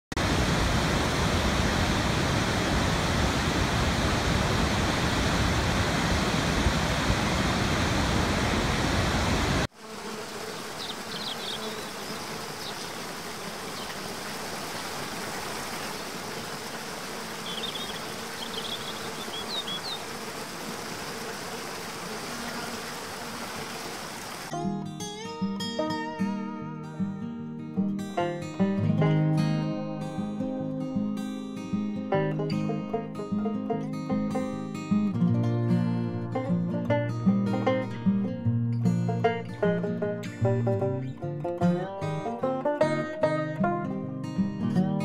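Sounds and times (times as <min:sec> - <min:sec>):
forest cascade: 0:00.1 - 0:24.5
waterfall rushing: 0:00.2 - 0:09.7, 0:10.3 - 0:24.5.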